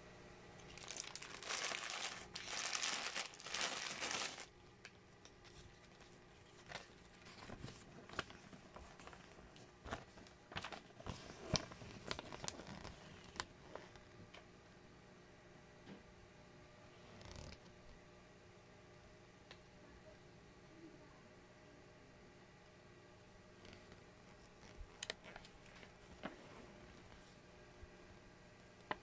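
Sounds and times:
plastic bags crinkling: 0.6 - 13.5.

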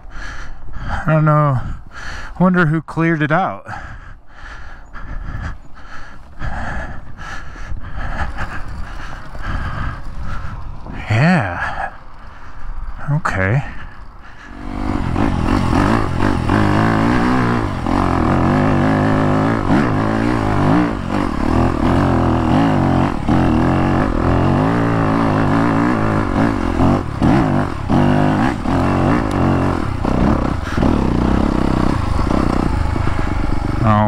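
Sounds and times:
dirt bike engine revving: 8.0 - 34.0.

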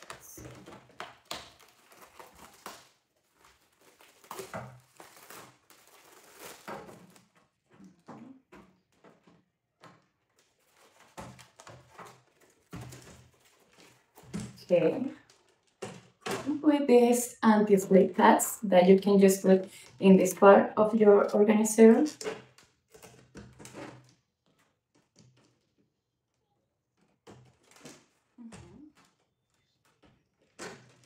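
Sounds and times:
packaging rustling: 0.0 - 7.9, 10.0 - 16.2
plastic parts clicking and knocking: 0.0 - 16.5, 22.1 - 31.0.

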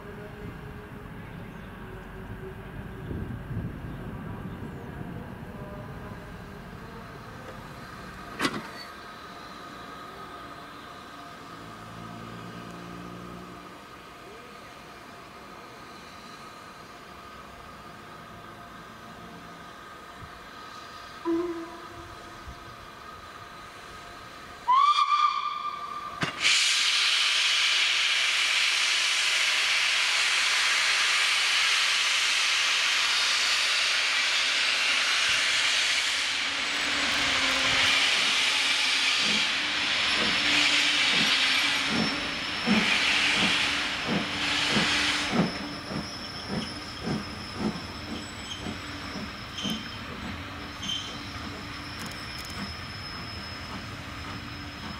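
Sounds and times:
steam hissing: 19.7 - 54.9
steam whistle blast: 21.2 - 22.2, 24.6 - 27.7
steam locomotive exhaust beats: 24.5 - 54.9.

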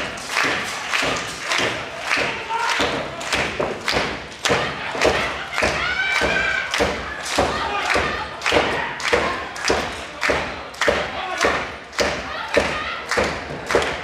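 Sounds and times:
audience clapping in rhythm: 0.0 - 14.0.

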